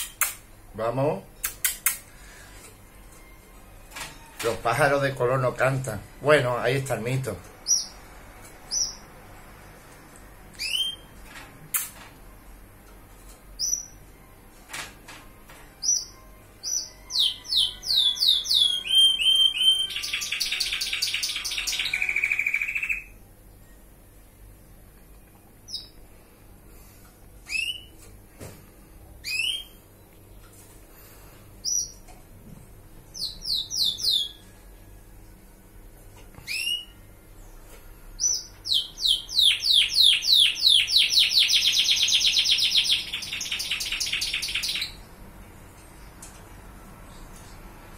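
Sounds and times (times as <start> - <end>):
canary singing trills: 7.6 - 8.0, 8.6 - 9.1, 10.6 - 11.2, 13.6 - 14.0, 15.8 - 23.2, 25.6 - 26.0, 27.5 - 28.0, 29.2 - 29.8, 33.1 - 34.5, 36.4 - 37.6, 38.2 - 45.1
canary chirps: 7.6 - 9.2, 10.6 - 12.0, 13.6 - 14.1, 15.7 - 23.3, 25.6 - 26.0, 27.4 - 28.0, 29.2 - 30.5, 31.6 - 32.1, 33.1 - 34.5, 36.4 - 37.6, 38.2 - 45.1.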